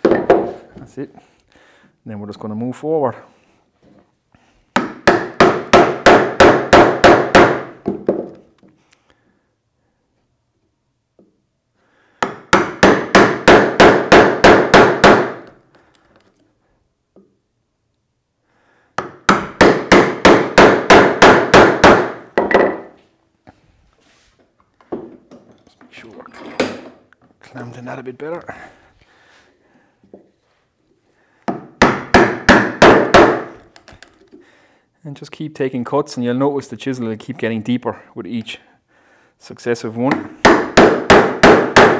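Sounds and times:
mallet striking chisel: 0:40.4 - 0:41.9.

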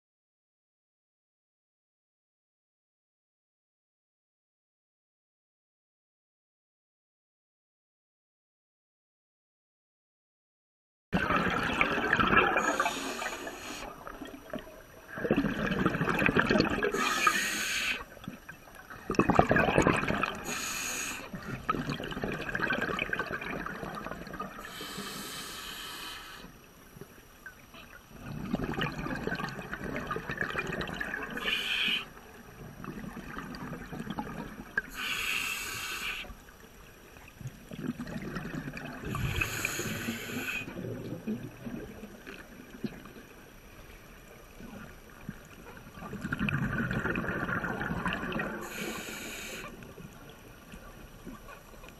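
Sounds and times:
bubbling exhaled air: 0:11.2 - 0:26.5, 0:28.2 - 0:32.1, 0:37.7 - 0:43.0, 0:46.0 - 0:50.1
hissing regulator inhalations: 0:12.6 - 0:14.0, 0:16.9 - 0:18.0, 0:20.4 - 0:21.4, 0:24.6 - 0:26.5, 0:31.4 - 0:32.1, 0:34.9 - 0:36.4, 0:39.1 - 0:40.8, 0:48.6 - 0:49.8.

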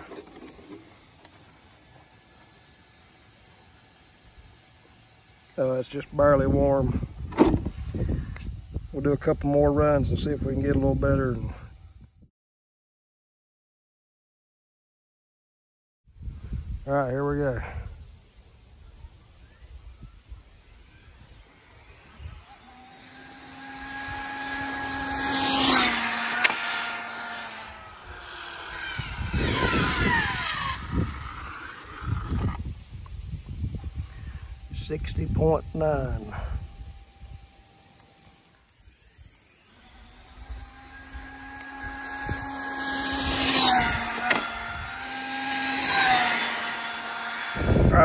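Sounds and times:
rough tyre noise: 0:00.0 - 0:08.5, 0:21.5 - 0:48.0
rc car motor whine: 0:00.0 - 0:08.7, 0:18.0 - 0:48.0.

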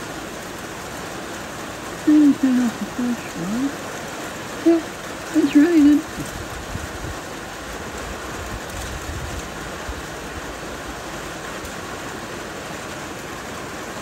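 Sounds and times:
steady rain: 0:00.0 - 0:14.0.

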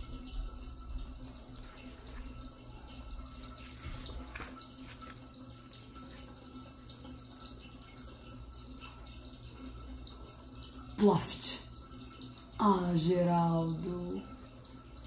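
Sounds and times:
faint steady hum: 0:00.0 - 0:15.0
book pages turning: 0:03.2 - 0:05.4.

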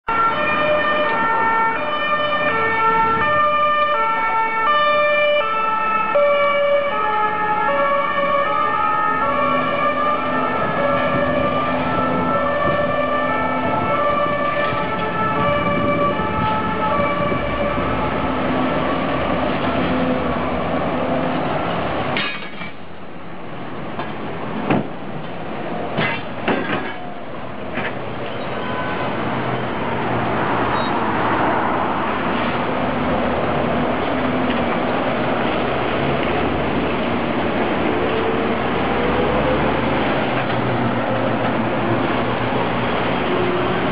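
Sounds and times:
two-tone ambulance siren: 0:00.1 - 0:20.6
passing vehicle: 0:00.1 - 0:23.0, 0:23.6 - 0:43.9
bus clacking and knocking: 0:07.4 - 0:43.9.

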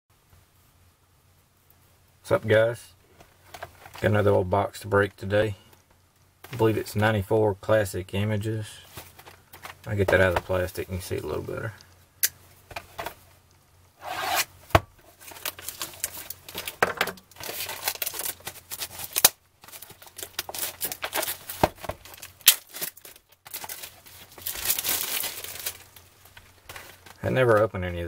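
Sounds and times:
plastic shrink wrap crinkling and tearing: 0:15.0 - 0:27.8.

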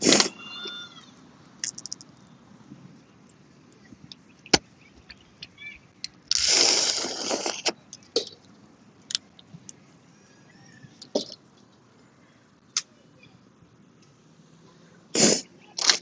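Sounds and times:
crawfish shells cracking: 0:01.6 - 0:02.2, 0:04.5 - 0:09.8
loud slurp: 0:06.3 - 0:07.8, 0:15.2 - 0:15.5.

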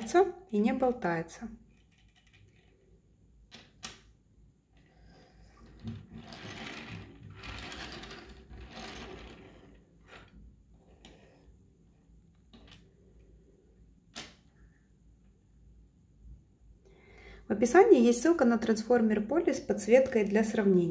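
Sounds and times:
plastic toy parts clicking and rattling: 0:01.7 - 0:02.7.

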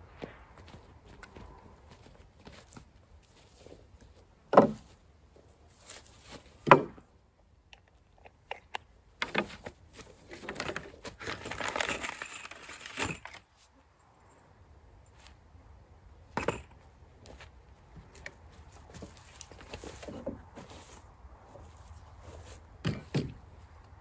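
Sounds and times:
wooden boards knocking: 0:04.5 - 0:04.8, 0:06.7 - 0:07.0
packaging rustling and crinkling: 0:10.3 - 0:13.4.

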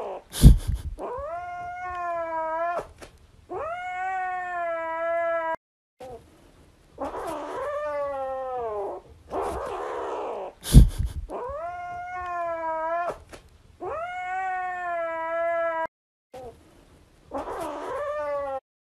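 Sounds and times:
cat yowling meows: 0:00.9 - 0:02.9, 0:03.5 - 0:06.2, 0:07.0 - 0:10.6, 0:11.3 - 0:13.2, 0:13.8 - 0:16.5, 0:17.3 - 0:18.6.

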